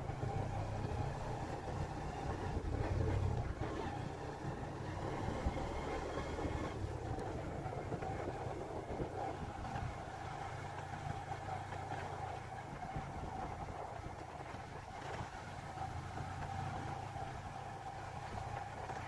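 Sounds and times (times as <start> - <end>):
motorcycle engine running: 0.0 - 19.0
wind: 0.0 - 19.0.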